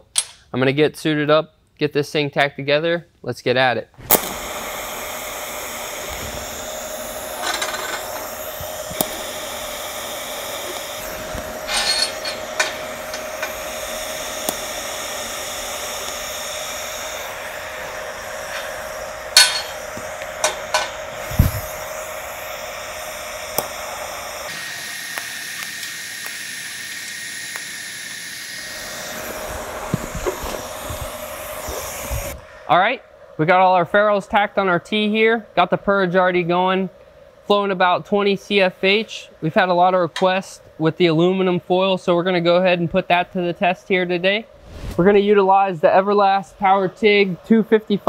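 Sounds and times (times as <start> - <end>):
steady hiss: 4.0 - 48.0
metal fittings clinking on bench: 11.7 - 13.5, 19.4 - 19.8.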